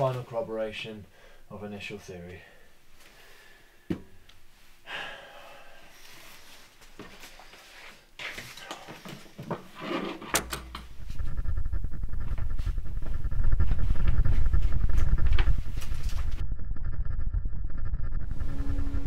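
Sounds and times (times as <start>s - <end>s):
deep low rumbling drone: 10.8s - 19.0s.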